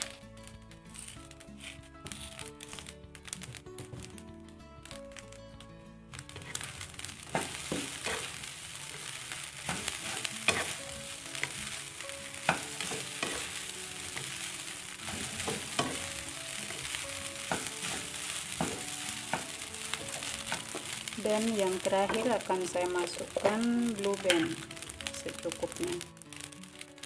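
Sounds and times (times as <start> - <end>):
rice sizzling in a wok: 0.0 - 27.0
spatula scraping and knocking pan: 6.3 - 21.2.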